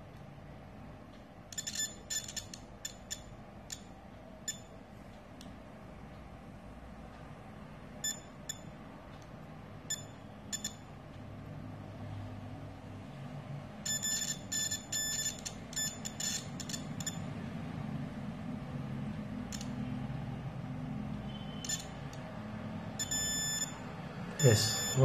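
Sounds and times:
multimeter continuity beeps: 1.0s - 5.6s, 8.0s - 11.3s, 13.8s - 17.8s, 19.2s - 25.0s.

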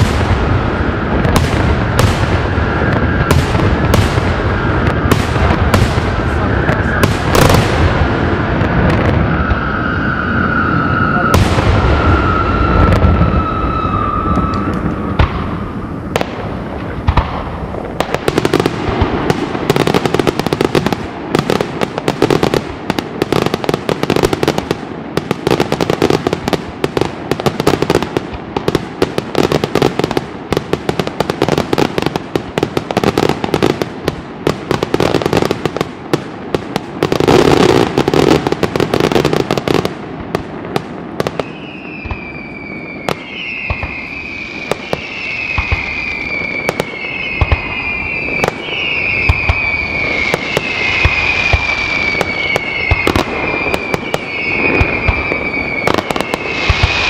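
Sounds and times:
fireworks bangs and crackles: 0.0s - 57.0s
falling whistle: 9.2s - 15.9s, 41.4s - 57.0s.

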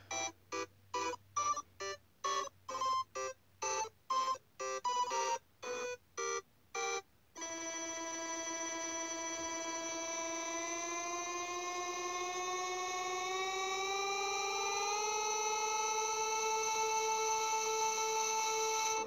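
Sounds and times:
melody of short notes: 0.0s - 10.6s.

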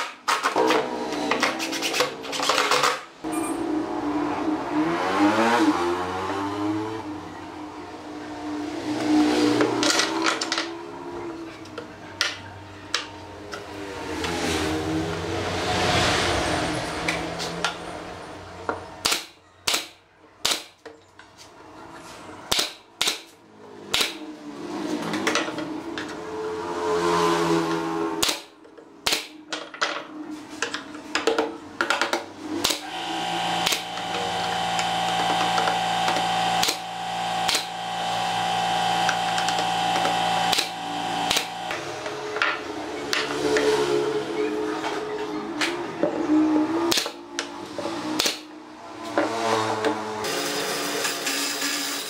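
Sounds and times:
nail gun firing into wood: 19.0s - 20.8s, 22.5s - 23.3s, 23.9s - 24.2s, 28.2s - 29.4s, 32.6s - 32.9s, 33.6s - 34.0s, 37.5s - 37.7s, 40.5s - 41.6s, 48.2s - 48.5s.

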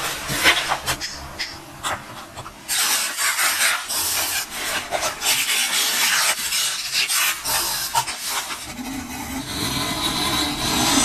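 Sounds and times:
fingertips rubbing tape on paper: 2.7s - 11.0s.

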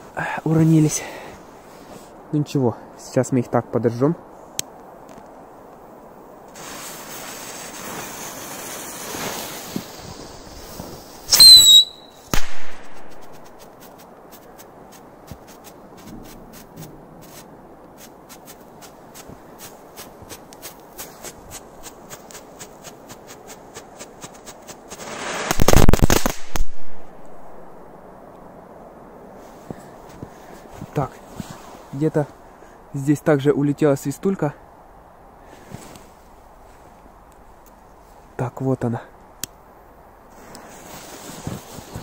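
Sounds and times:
firecracker spitting sparks: 6.5s - 26.7s
high whistle: 11.3s - 12.3s
firecracker bangs: 11.3s - 13.2s.

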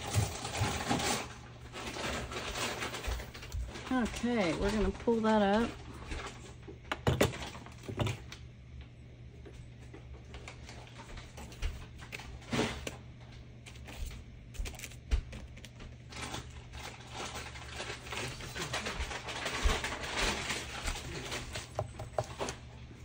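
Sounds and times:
brayer and paper clicks and rustles: 0.0s - 6.6s, 9.9s - 22.6s.

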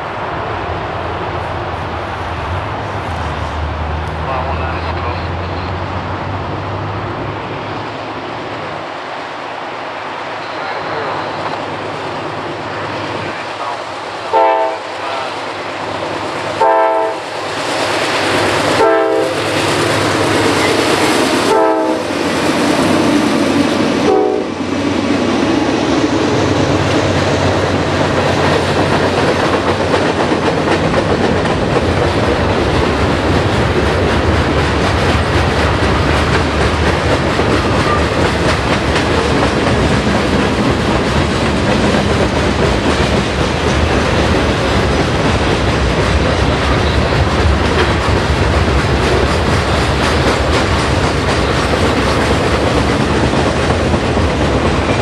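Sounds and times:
freight cars rumbling past: 0.0s - 55.0s
locomotive air horn blasts: 14.3s - 15.2s, 16.6s - 17.3s, 18.8s - 19.4s, 21.5s - 22.0s, 24.0s - 24.5s
wheels clacking over rail joints: 15.9s - 55.0s.

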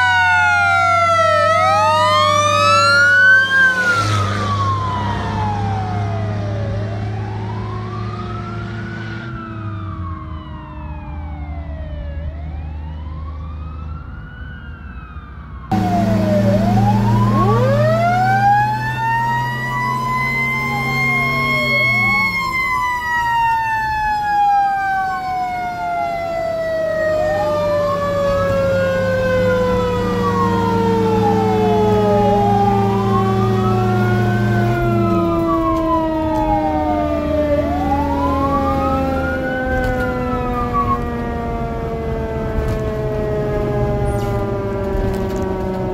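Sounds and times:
fire truck sirens wailing: 0.0s - 45.9s
truck engine running: 15.7s - 22.8s.

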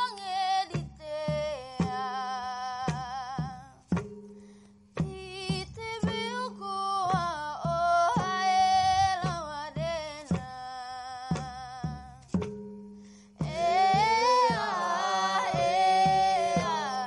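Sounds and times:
person singing slow melody: 0.0s - 3.9s, 13.3s - 17.0s
sharp percussion strikes: 0.7s - 10.7s, 11.3s - 17.0s
steady low drone: 13.4s - 17.0s.

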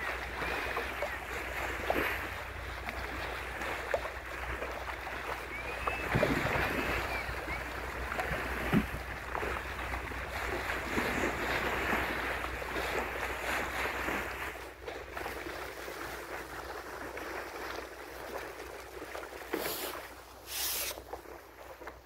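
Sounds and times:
water rushing along boat bow: 0.0s - 22.0s
short hissing bursts: 19.6s - 21.0s.

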